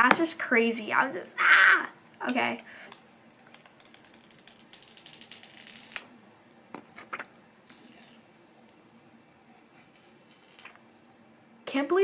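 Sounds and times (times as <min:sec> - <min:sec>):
plastic film crinkling: 0:02.9 - 0:06.1.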